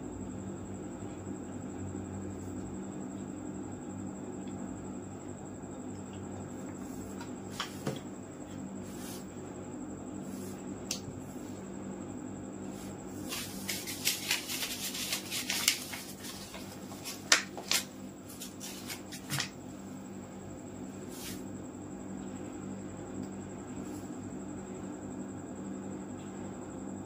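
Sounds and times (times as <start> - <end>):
steady low hum: 0.0 - 27.0
plastic parts rustling and scraping: 13.2 - 17.8.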